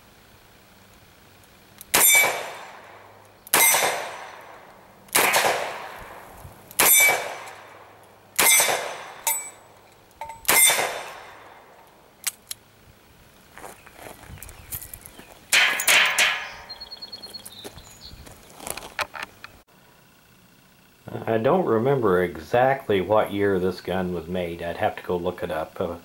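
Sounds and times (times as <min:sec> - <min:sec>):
bullets ringing on steel targets: 0:01.9 - 0:04.6, 0:06.8 - 0:07.8, 0:08.4 - 0:11.5, 0:15.5 - 0:16.8
revolver shots echoing: 0:01.9 - 0:09.8, 0:10.4 - 0:11.8, 0:15.5 - 0:16.8.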